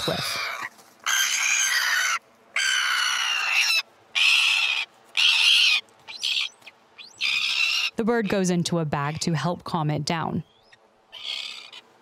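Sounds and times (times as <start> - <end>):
bird screeching: 0.0 - 8.0, 10.4 - 11.9.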